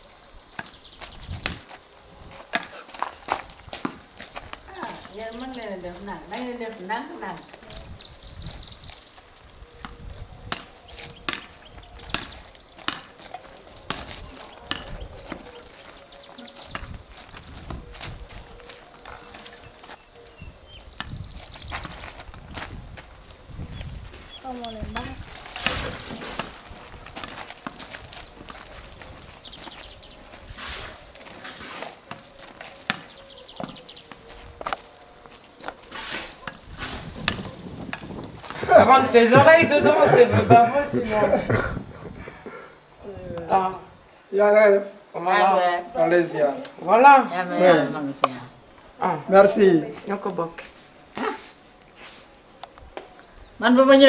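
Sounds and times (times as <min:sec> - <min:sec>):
footsteps on gravel: 0:00.6 - 0:40.9
plastic rackets hitting ball: 0:10.5 - 0:15.5.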